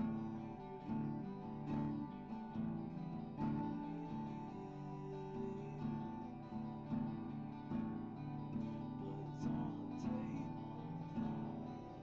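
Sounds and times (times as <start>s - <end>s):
strummed guitar chords: 0.0s - 12.0s.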